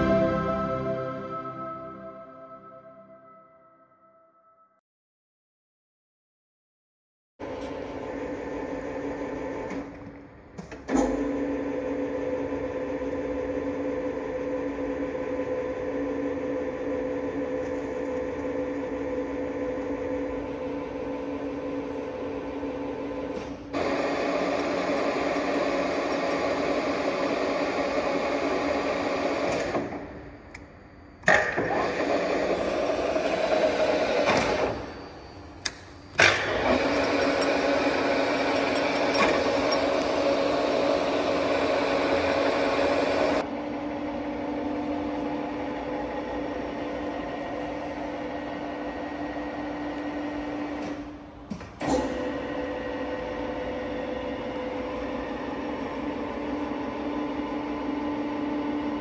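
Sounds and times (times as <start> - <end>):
milling machine humming: 11.2 - 51.2.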